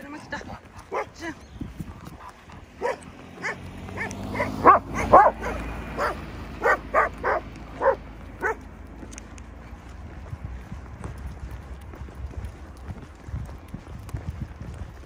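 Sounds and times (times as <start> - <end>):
dog barking: 0.9 - 1.2, 2.8 - 8.6.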